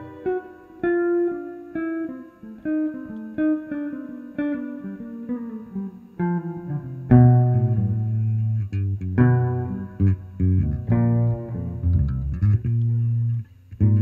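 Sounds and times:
electric guitar plucked notes: 0.0 - 14.0
electric bass low notes: 6.6 - 14.0.

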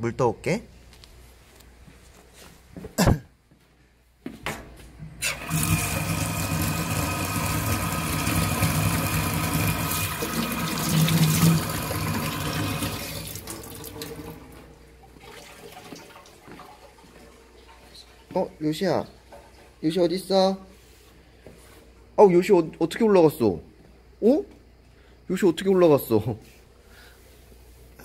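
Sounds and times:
faucet running into metal sink: 5.2 - 16.5.

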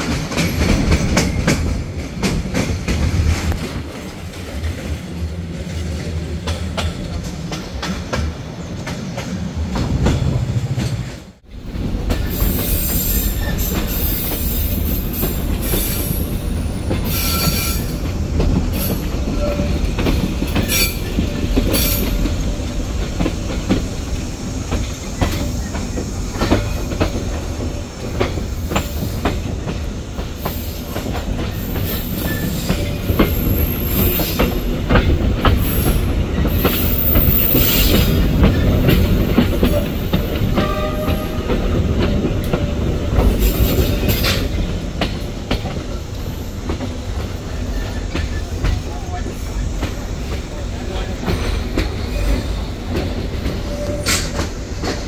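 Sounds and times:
train wheels rumbling on rails: 0.0 - 55.0
train wheel squeals: 12.1 - 22.7, 24.7 - 44.8, 45.6 - 55.0.

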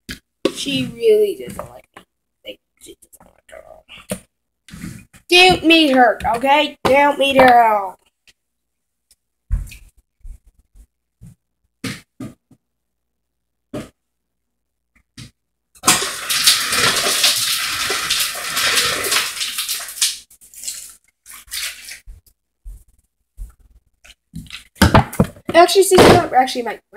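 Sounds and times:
water running from a tap: 15.8 - 22.0.

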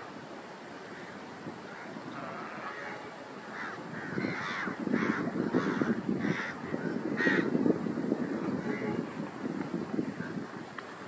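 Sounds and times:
low steady rush: 0.0 - 11.0
crows cawing: 3.5 - 6.6.

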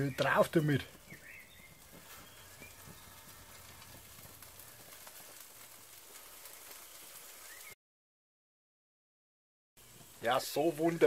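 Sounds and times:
fish sizzling on a grill: 0.0 - 7.8, 9.8 - 11.0.

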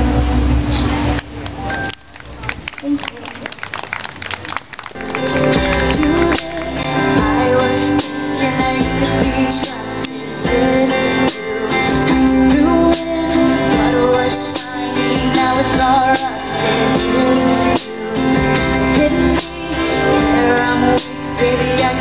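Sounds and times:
bass guitar: 0.0 - 2.6, 5.0 - 22.0
keyboard: 4.9 - 22.0
strummed acoustic guitars: 5.0 - 22.0
woman singing: 5.2 - 22.0.

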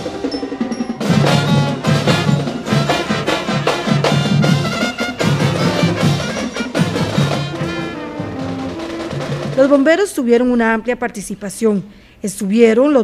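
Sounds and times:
brass instruments playing: 0.0 - 10.0
snare drum beat: 0.9 - 9.9.

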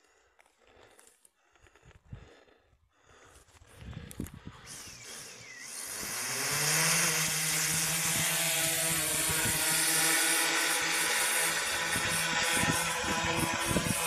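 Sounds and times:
drone propellers buzzing: 4.4 - 14.0.

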